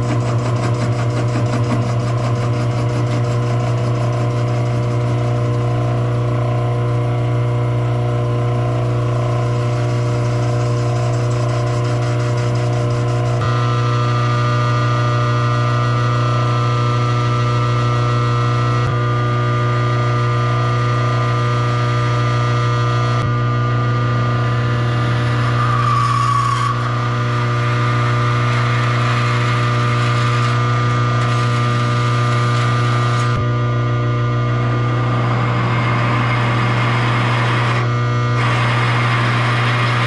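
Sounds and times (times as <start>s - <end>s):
tool cutting steel: 0.0s - 6.2s, 8.9s - 13.5s, 24.4s - 33.5s, 34.5s - 40.0s
lathe motor and gear hum: 0.0s - 40.0s
high squeal: 25.3s - 27.0s.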